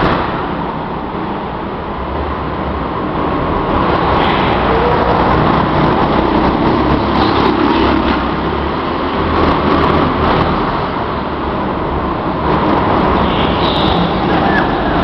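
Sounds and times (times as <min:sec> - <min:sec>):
go-kart engines droning: 0:00.0 - 0:15.0.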